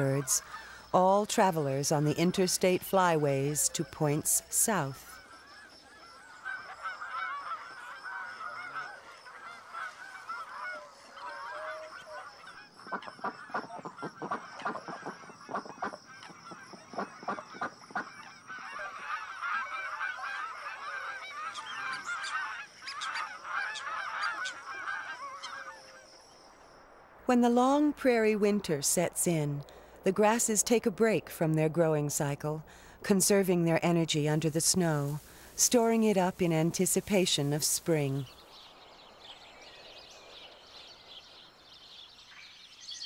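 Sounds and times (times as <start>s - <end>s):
geese honking: 0.0s - 26.1s, 33.2s - 38.3s.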